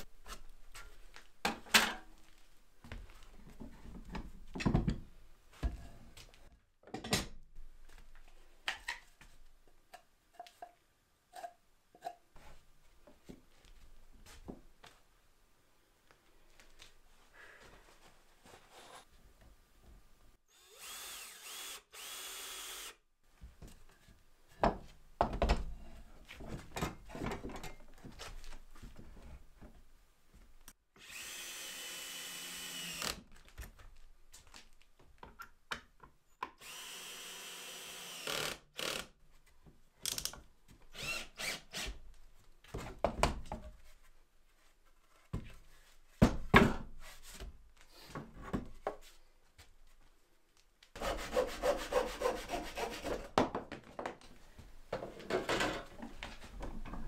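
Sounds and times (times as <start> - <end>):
power drill running: 20.5 - 23.0, 31.0 - 33.2, 36.6 - 39.0
wooden knocks and thunks: 24.6 - 25.7.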